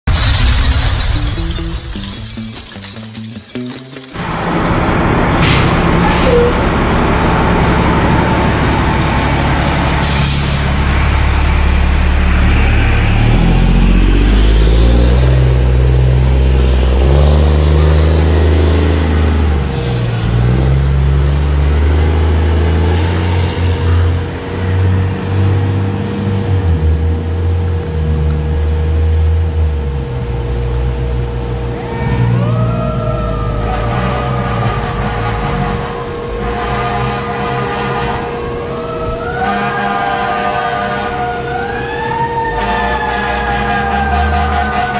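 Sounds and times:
diesel truck engine running: 3.3s - 44.9s
siren rising: 31.8s - 37.3s, 38.2s - 44.9s.

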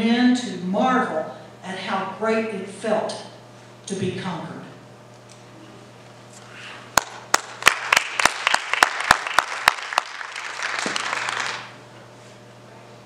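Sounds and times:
sharp nearby claps: 7.0s - 11.7s
audience applause: 7.0s - 11.8s.

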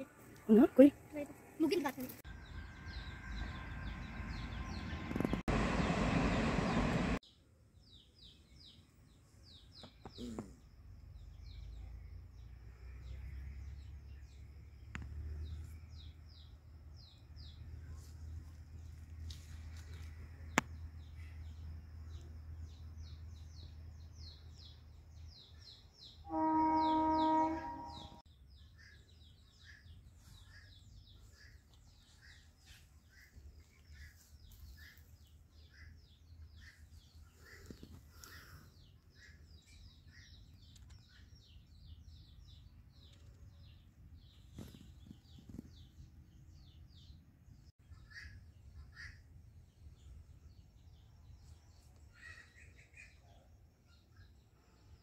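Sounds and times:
low steady rumble: 2.3s - 7.2s
small birds chirping: 6.7s - 55.0s.

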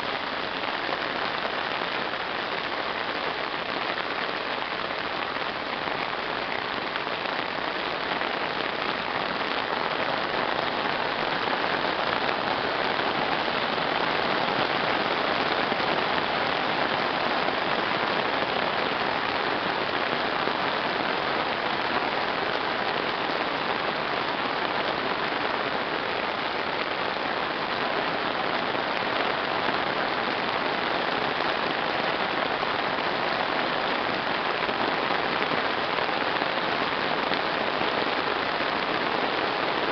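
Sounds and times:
heavy rain on road: 0.0s - 39.9s.

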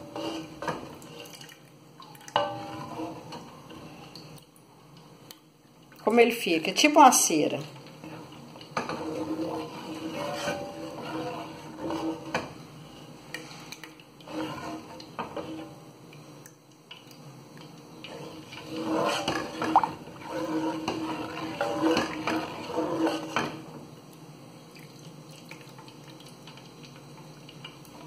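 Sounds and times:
wooden spoon scraping a pan: 0.0s - 1.4s, 2.4s - 4.1s, 8.0s - 15.8s, 18.0s - 23.8s.

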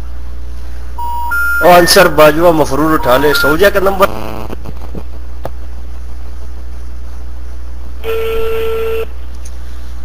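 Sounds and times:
low line hum: 0.0s - 10.0s
telephone ringback tone: 1.0s - 3.7s.

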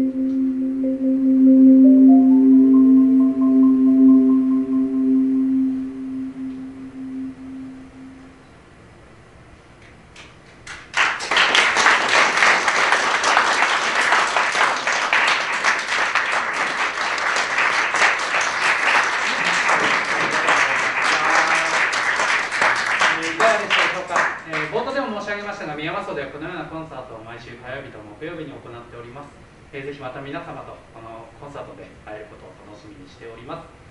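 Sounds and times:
marimba chord ringing: 0.0s - 8.4s
audience applause: 10.7s - 24.7s.

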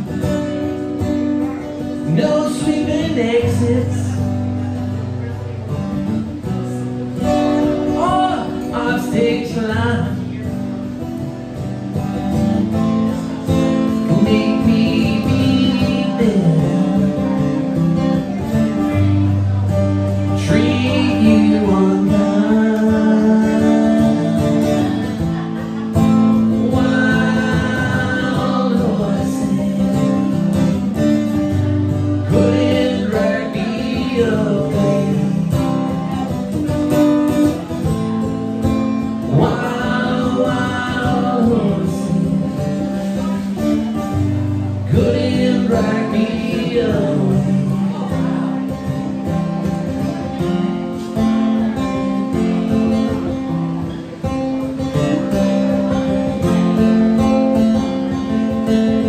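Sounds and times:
man singing: 0.0s - 4.6s, 7.2s - 10.7s, 12.2s - 51.0s
acoustic guitar strumming: 0.0s - 59.0s.

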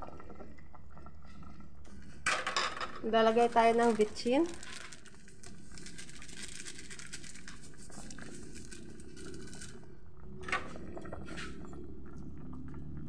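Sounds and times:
broth simmering: 0.0s - 2.3s, 2.9s - 13.0s
packet crinkling: 3.4s - 9.8s.

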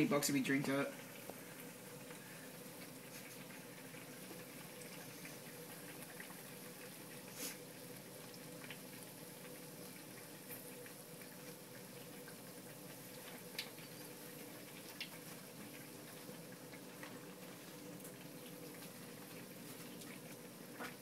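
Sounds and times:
oil bubbling and crackling: 0.0s - 21.0s.

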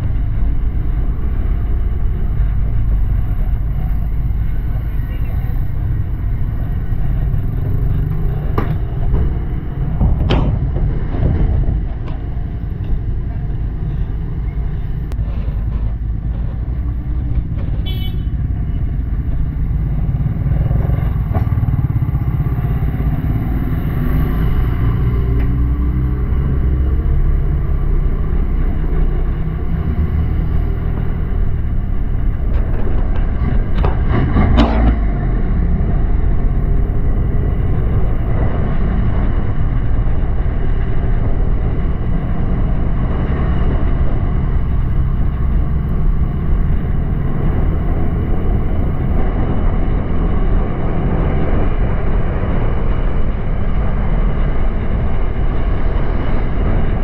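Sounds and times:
road and air noise: 0.0s - 57.0s
sharp knocks: 8.5s - 11.8s.

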